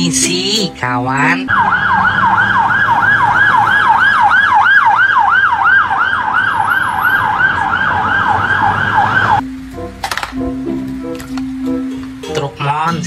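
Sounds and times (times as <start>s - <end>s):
music: 0.0s - 1.5s, 9.4s - 13.0s
police siren yelp: 1.5s - 9.4s.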